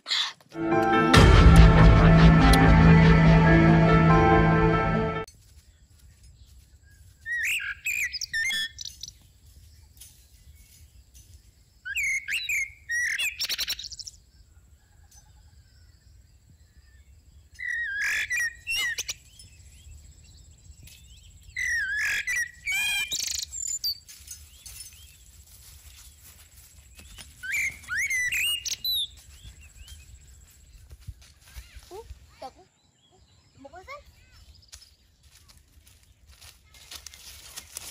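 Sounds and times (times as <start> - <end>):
songbird chirps and whistles: 6.8 - 9.2, 11.8 - 14.1, 16.9 - 25.2, 26.9 - 30.9.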